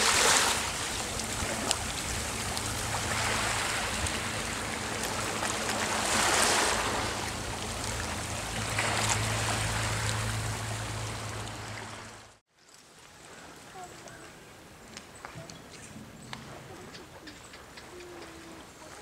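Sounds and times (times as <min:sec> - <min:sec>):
small waves washing on beach: 0:00.0 - 0:19.0
steady low hum: 0:00.6 - 0:12.4.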